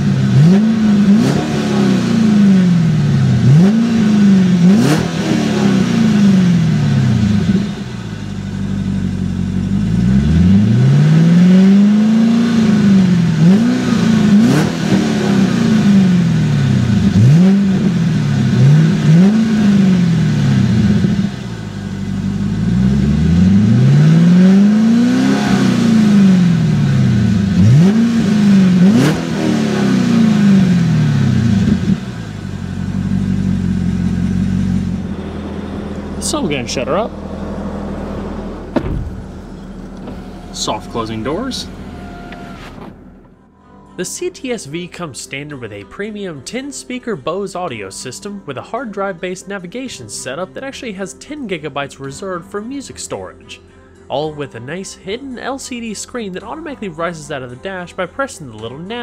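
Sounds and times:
car engine revving: 0.0s - 43.5s
supercharger whining: 0.0s - 43.6s.

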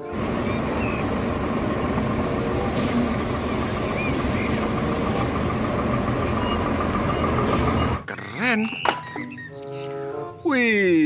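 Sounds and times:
diesel engine rumbling: 0.0s - 10.4s
air brake hiss: 2.7s - 3.3s, 7.4s - 8.0s.

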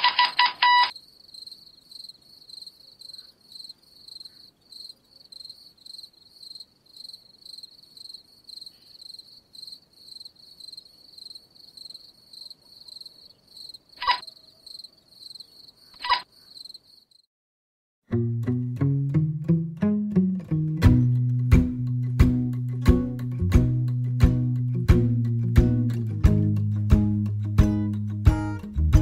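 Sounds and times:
alarm clock beeping: 0.1s - 0.9s.

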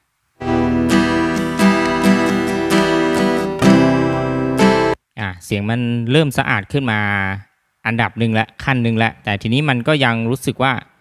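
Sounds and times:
acoustic guitars strumming and picking: 0.4s - 5.0s
repeating plucked note: 0.4s - 5.0s.

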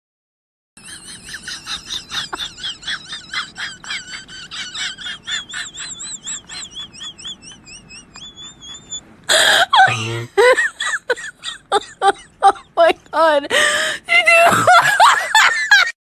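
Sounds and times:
high bird-like chirps: 6.2s - 9.0s.

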